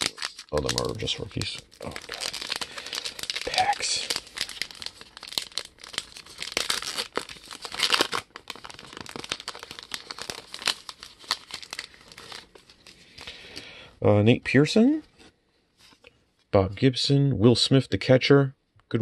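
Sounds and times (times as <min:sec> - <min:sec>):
plastic wrapper crinkling and tearing: 0:00.0 - 0:13.7.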